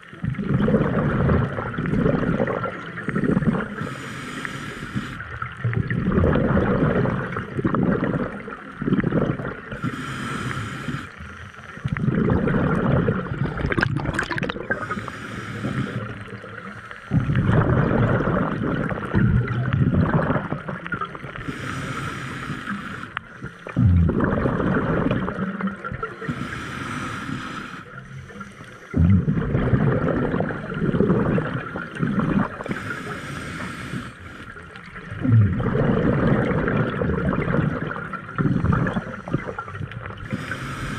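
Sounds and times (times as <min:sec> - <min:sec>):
exhaled bubbles gurgling: 0:00.0 - 0:40.9
regulator inhale hiss: 0:03.8 - 0:05.4, 0:09.8 - 0:11.8, 0:14.7 - 0:17.2, 0:21.4 - 0:23.8, 0:26.2 - 0:29.0, 0:32.6 - 0:34.8, 0:38.4 - 0:40.9.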